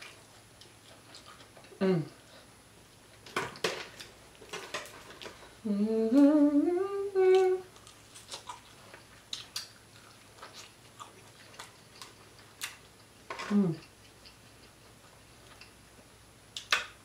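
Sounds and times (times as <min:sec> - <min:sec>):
woman humming mmm: 0:01.8 - 0:02.2, 0:05.6 - 0:07.7, 0:13.4 - 0:13.9.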